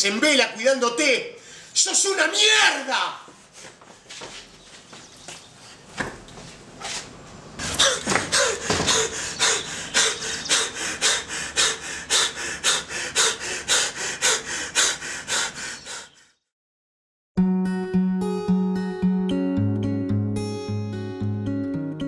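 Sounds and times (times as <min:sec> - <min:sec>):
man sobbing: 0:07.7 - 0:11.3.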